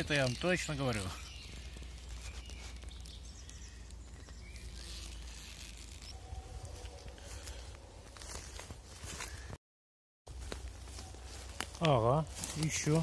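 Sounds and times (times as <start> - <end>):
faint birdsong: 0.0 - 9.6.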